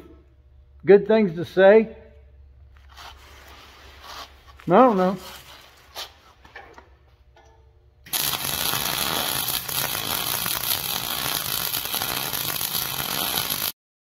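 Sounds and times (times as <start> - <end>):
arc gouging crackling hiss: 8.1 - 13.7.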